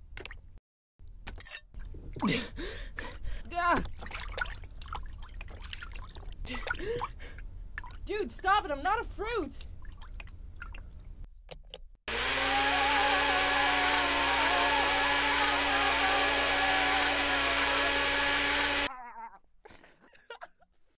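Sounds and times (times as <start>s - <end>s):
blender motor whining: 12.1s - 18.9s.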